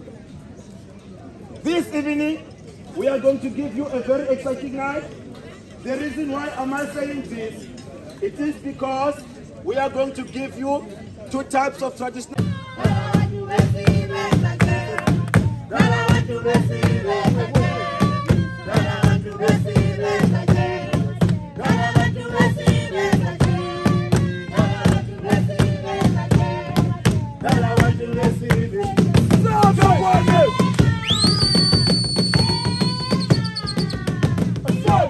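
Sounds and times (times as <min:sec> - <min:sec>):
group of voices singing: 0:12.4 - 0:31.2, 0:34.1 - 0:35.0
driving percussive beat: 0:12.4 - 0:35.0.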